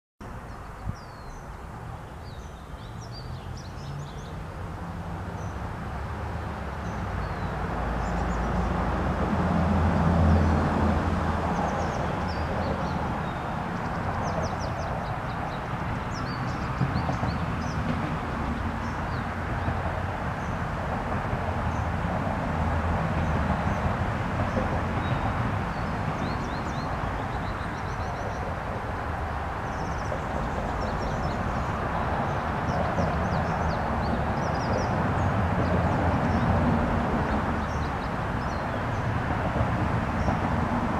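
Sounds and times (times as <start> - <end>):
distant traffic rumble: 0.2 - 40.9
small birds chirping: 0.5 - 4.4, 11.7 - 17.9, 25.0 - 28.5.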